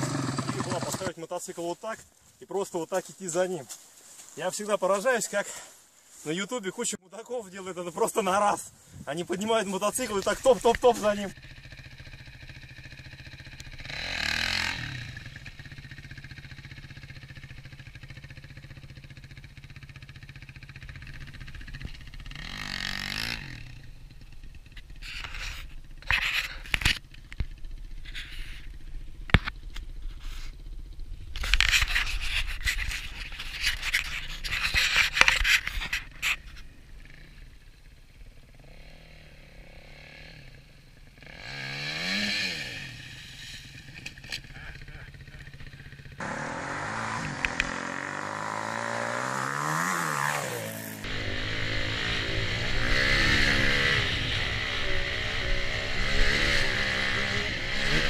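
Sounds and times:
dirt bike engine humming: 0.0 - 1.1, 9.7 - 58.0
sharp clicks: 47.2 - 47.8.

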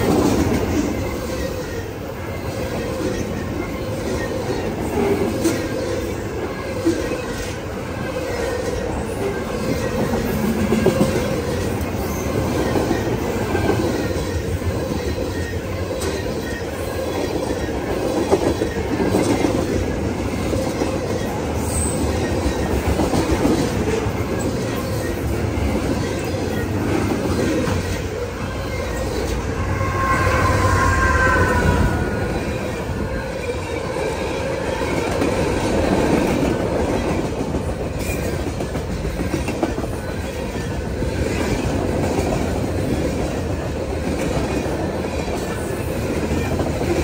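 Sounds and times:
freight train rumble: 0.0 - 47.0.

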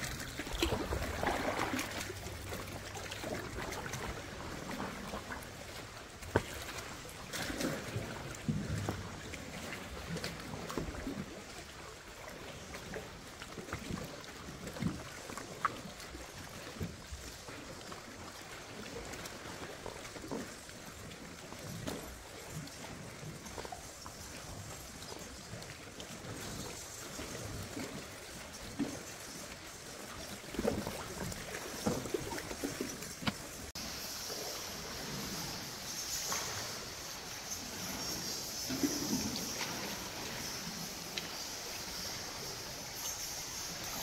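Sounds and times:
water sloshing around paddleboard: 0.0 - 44.0
steady high hiss: 33.8 - 44.0.

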